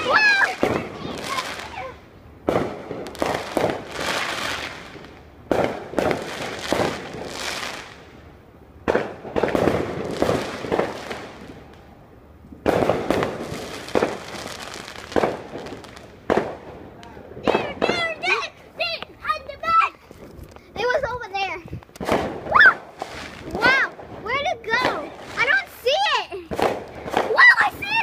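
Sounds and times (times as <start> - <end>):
fireworks bangs: 0.0 - 28.0.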